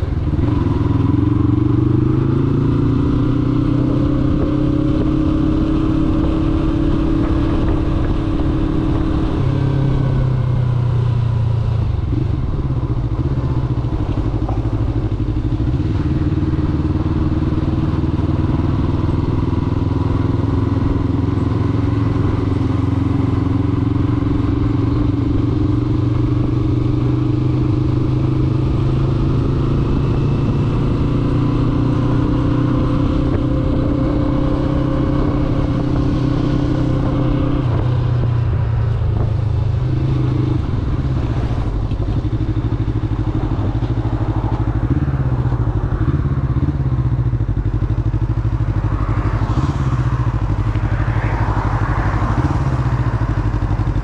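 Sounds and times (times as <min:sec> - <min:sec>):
motorcycle engine cruising: 0:00.0 - 0:54.0.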